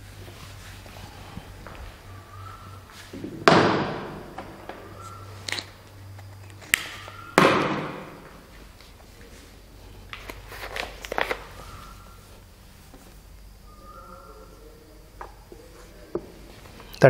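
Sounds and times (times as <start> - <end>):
steady low hum: 0.0 - 17.0
loud thuds in a reverberant room: 3.1 - 5.1, 7.3 - 8.4.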